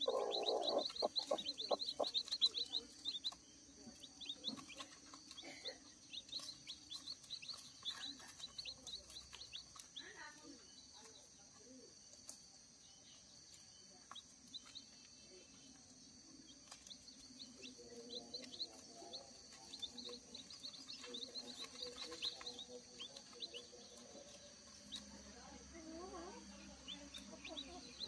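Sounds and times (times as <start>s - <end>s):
hen clucking softly: 0.0s - 3.4s
chicks peeping: 0.0s - 28.0s.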